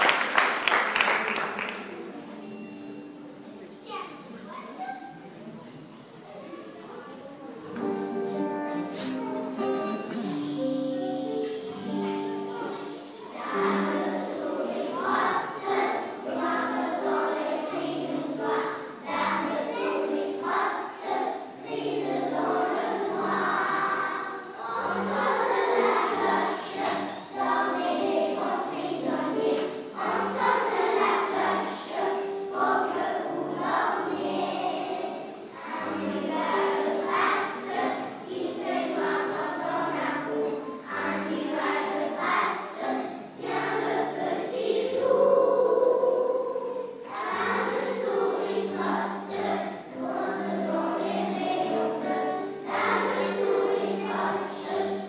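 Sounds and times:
children's choir singing: 0.0 - 3.7, 7.6 - 55.0
instrumental accompaniment: 7.6 - 55.0.

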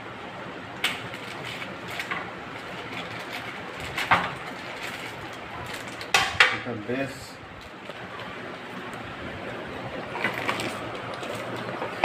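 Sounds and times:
plastic bag crinkling: 10.0 - 12.0.

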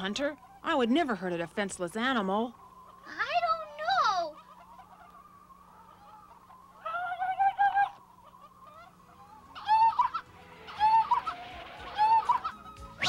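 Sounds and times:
cartoon seal high-pitched cries: 3.0 - 5.1, 5.8 - 13.0.

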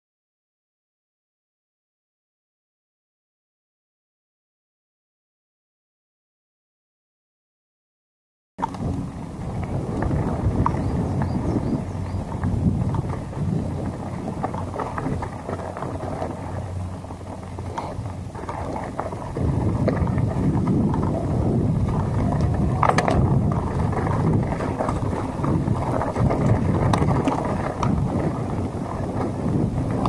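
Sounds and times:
bike tyres rumbling on gravel: 8.6 - 30.0
wind buffeting microphone: 8.6 - 30.0.

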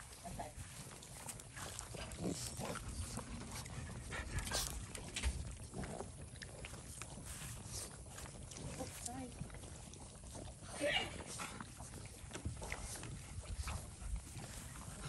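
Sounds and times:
dogs chewing and snuffling: 0.0 - 15.0
dog grunts: 1.7 - 6.2.

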